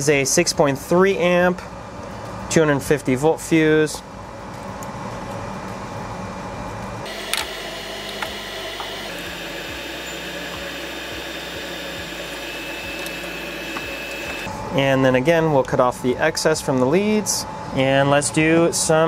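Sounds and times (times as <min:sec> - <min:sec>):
fan-like whir: 0:00.0 - 0:19.0.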